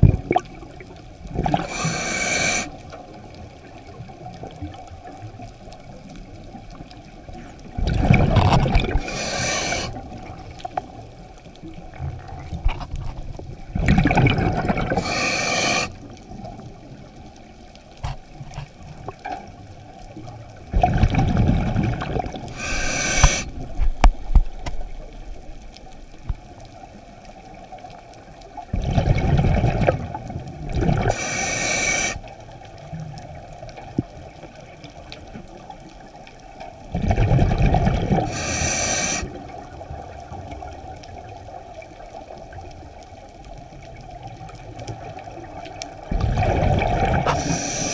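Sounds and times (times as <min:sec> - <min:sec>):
exhaled bubbles rushing: 0:00.0 - 0:02.7, 0:07.7 - 0:10.6, 0:13.6 - 0:16.0, 0:20.7 - 0:23.9, 0:28.7 - 0:31.2, 0:36.9 - 0:39.6, 0:45.0 - 0:47.9
regulator hissing: 0:01.7 - 0:02.8, 0:09.0 - 0:09.9, 0:15.0 - 0:15.9, 0:22.5 - 0:23.6, 0:31.1 - 0:32.2, 0:38.3 - 0:39.3, 0:47.3 - 0:47.9.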